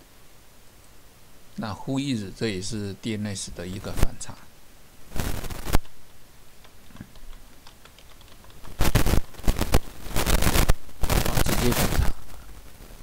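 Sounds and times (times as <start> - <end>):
typing on computer keyboard: 6.6 - 9.3.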